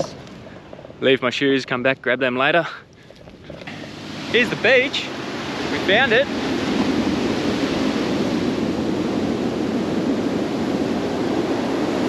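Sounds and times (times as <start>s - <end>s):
ocean surf washing onto beach: 3.4s - 12.0s.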